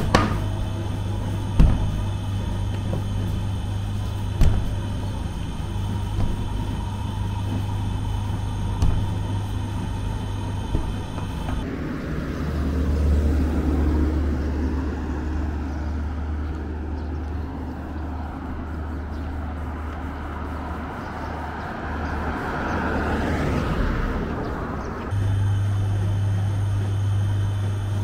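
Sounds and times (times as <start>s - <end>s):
steady machine hum: 0.0s - 15.0s, 25.1s - 28.0s
vehicle passing close: 0.0s - 27.3s
vehicle engine rumbling: 0.0s - 28.0s.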